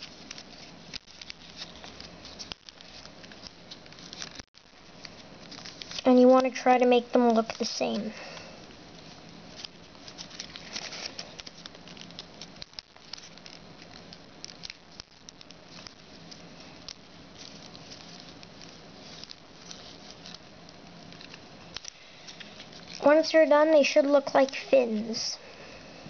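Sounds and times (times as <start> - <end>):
paper rustling and crackling: 0.0 - 25.2.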